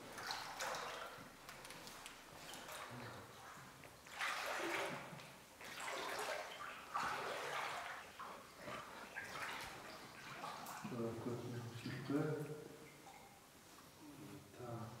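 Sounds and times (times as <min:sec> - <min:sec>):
footsteps splashing through shallow water: 0:00.0 - 0:11.0.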